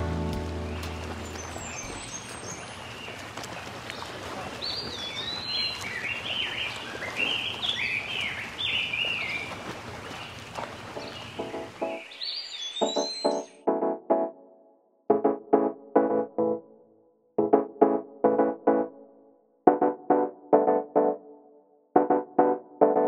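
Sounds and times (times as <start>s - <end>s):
songbird singing: 0.0s - 3.2s, 11.0s - 13.6s.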